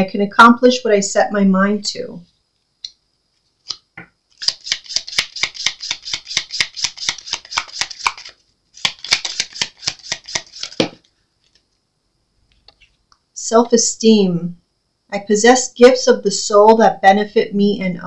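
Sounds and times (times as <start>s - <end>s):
cards being shuffled: 3.4s - 11.7s.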